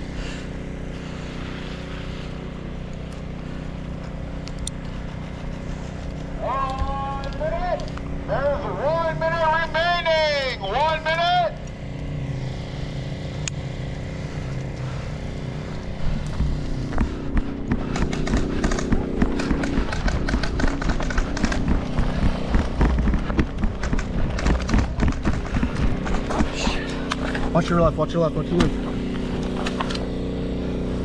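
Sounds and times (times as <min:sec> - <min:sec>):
steady low hum: 0:00.0 - 0:31.0
gear rattling: 0:15.8 - 0:30.1
quick footfalls: 0:16.1 - 0:27.6.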